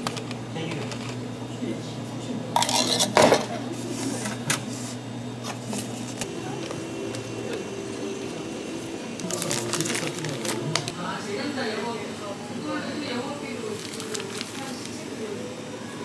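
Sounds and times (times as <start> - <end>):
steady machine hum: 0.0 - 16.0
dishes clinking and clattering: 2.6 - 3.6.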